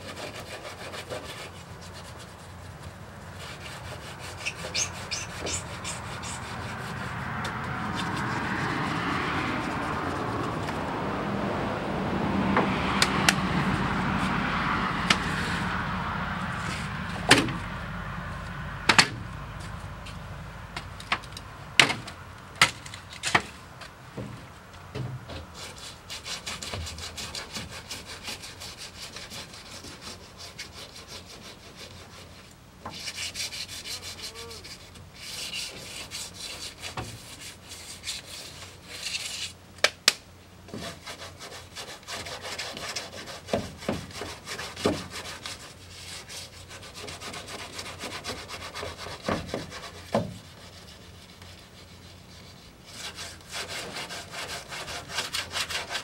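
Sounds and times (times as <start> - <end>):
hand sanding strokes: 0.0 - 11.0, 13.0 - 15.8, 16.4 - 17.6, 25.3 - 39.6, 40.7 - 56.0
rushing noise: 3.5 - 20.8.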